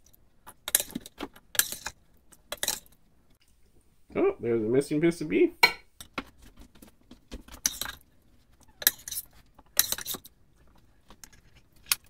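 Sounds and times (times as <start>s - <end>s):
metal spoon scraping ceramic dish: 0.7s - 2.9s, 7.6s - 8.0s, 8.8s - 10.3s.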